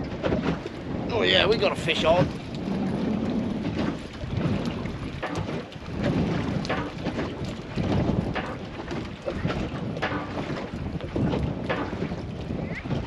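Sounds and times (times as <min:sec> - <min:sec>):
wind buffeting microphone: 0:00.0 - 0:13.0
water splashing ticks: 0:01.6 - 0:10.8.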